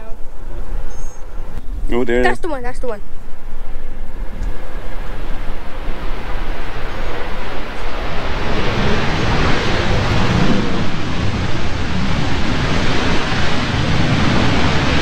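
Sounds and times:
jet engine roar: 0:00.0 - 0:15.0
low rumble: 0:00.0 - 0:15.0
wind buffeting microphone: 0:00.0 - 0:15.0.

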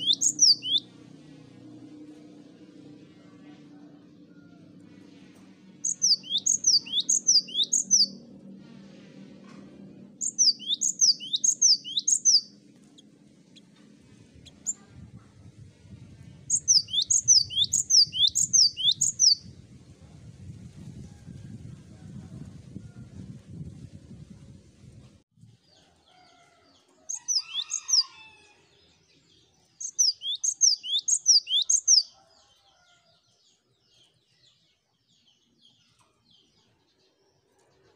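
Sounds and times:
low hum: 0:00.0 - 0:25.2.

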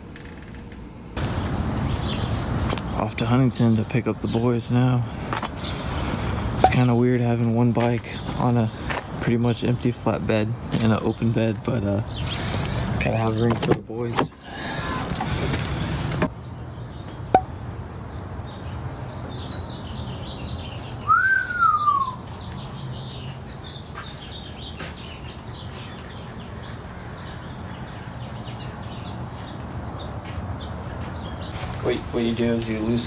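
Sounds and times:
small birds chirping: 0:01.2 - 0:33.0
rising and falling whistle: 0:21.0 - 0:22.3.

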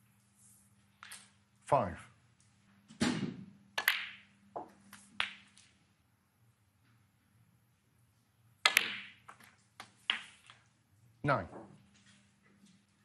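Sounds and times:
cue tip striking ball: 0:03.0 - 0:05.5, 0:08.7 - 0:09.2
snooker balls clicking: 0:03.8 - 0:05.8, 0:08.6 - 0:10.8.

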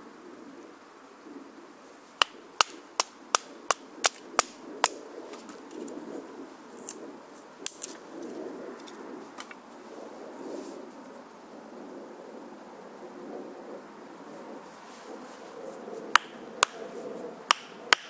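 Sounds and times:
wooden log knocking on stick: 0:02.2 - 0:05.0, 0:16.2 - 0:16.8.

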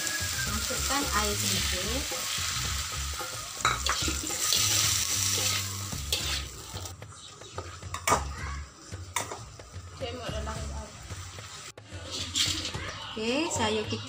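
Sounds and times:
vegetables sizzling in a wok: 0:00.0 - 0:14.0
metal spatula scraping a pan: 0:00.6 - 0:06.9, 0:11.9 - 0:12.8.

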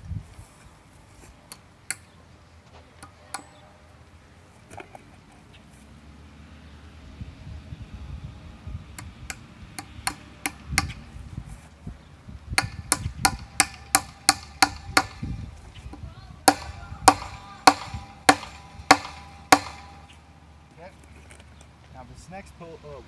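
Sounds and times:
hammer striking staples into wood: 0:09.3 - 0:11.0, 0:12.6 - 0:15.4, 0:16.5 - 0:20.1.

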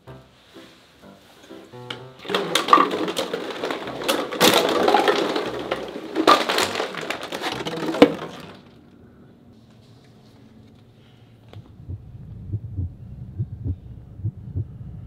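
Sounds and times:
plastic bottles crushed and clattering: 0:01.9 - 0:08.9.

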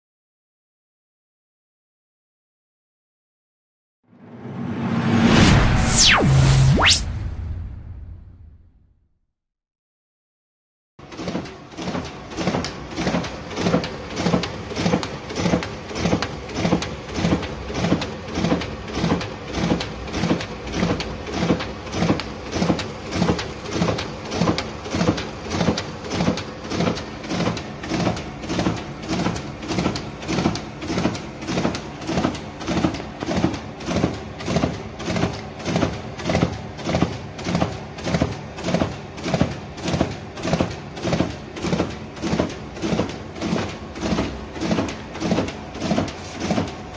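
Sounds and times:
duplicator feeding sheets: 0:04.3 - 0:08.4, 0:11.0 - 0:46.9.

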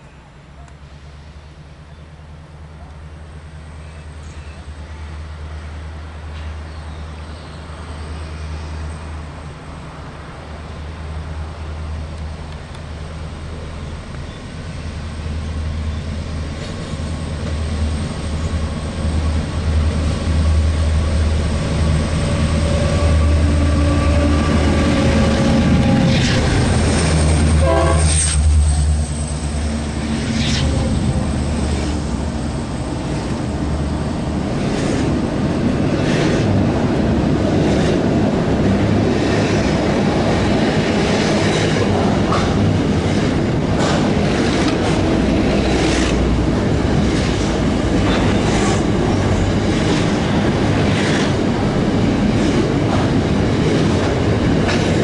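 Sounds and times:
diesel locomotive engine rumble: 0:00.0 - 0:55.0
train horn blast: 0:22.5 - 0:26.6, 0:27.4 - 0:28.8.

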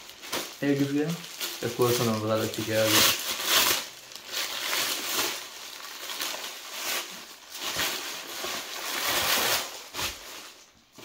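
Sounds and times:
plastic bag crinkling and rustling: 0:00.0 - 0:11.0.

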